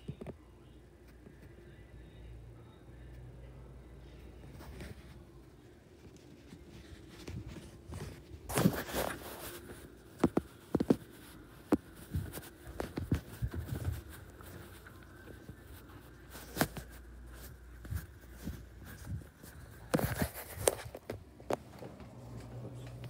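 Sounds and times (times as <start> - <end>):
phone being handled: 6.0 - 22.0
footsteps: 6.3 - 23.0.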